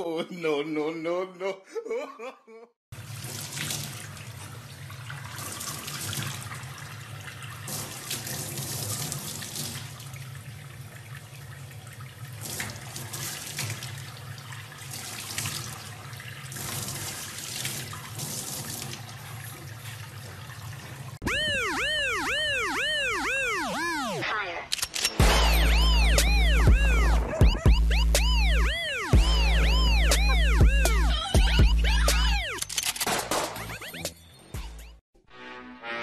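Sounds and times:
tap water running into a sink: 3.0s - 21.2s
warbling tone: 21.2s - 24.4s, 25.2s - 32.7s.

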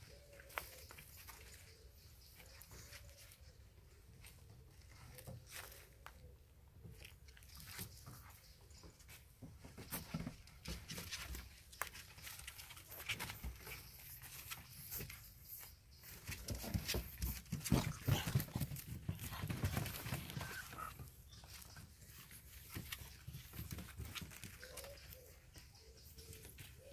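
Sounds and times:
puppies scuffling: 6.8s - 26.8s
paws tapping on wooden boards: 7.7s - 26.8s.

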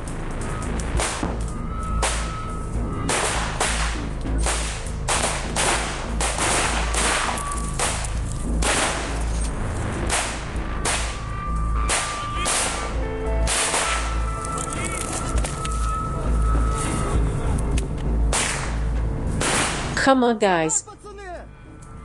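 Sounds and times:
low rumble: 0.0s - 22.0s
rifle shots echoing: 3.0s - 9.4s, 10.1s - 14.3s, 18.3s - 20.0s.

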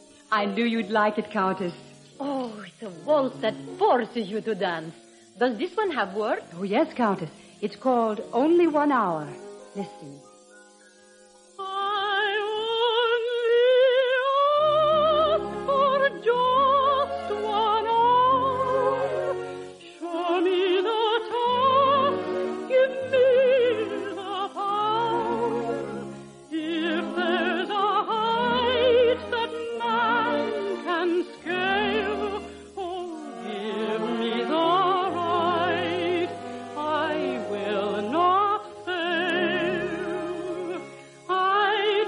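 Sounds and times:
soprano singing: 0.0s - 42.0s
orchestra playing: 21.3s - 41.0s.

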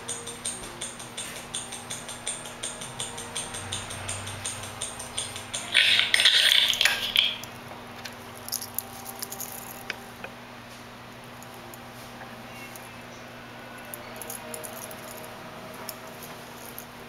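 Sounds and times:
mechanical watch ticking: 0.0s - 7.6s
metal bracelet scraping and rattling: 8.4s - 10.0s, 13.8s - 17.0s.

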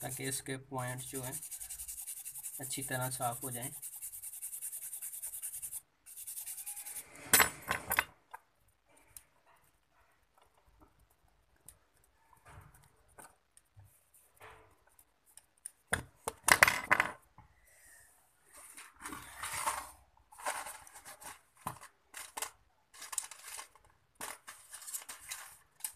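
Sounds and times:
toothbrush scrubbing circuit board: 0.0s - 7.2s.

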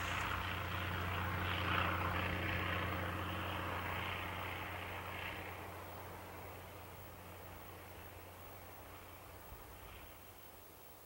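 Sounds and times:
low hum: 0.0s - 10.9s
distant aircraft engine droning: 0.0s - 11.0s.

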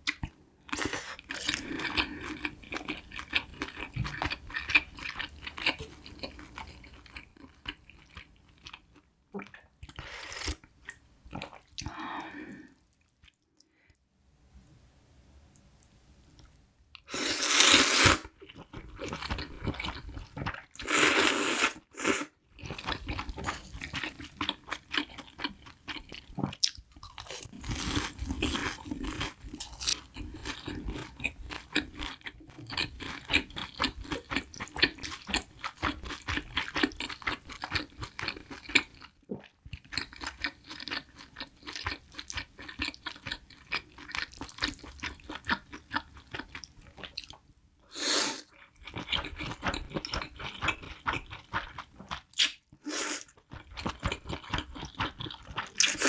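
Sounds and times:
slurping noodles: 17.1s - 18.3s, 20.8s - 22.3s, 47.9s - 48.5s.

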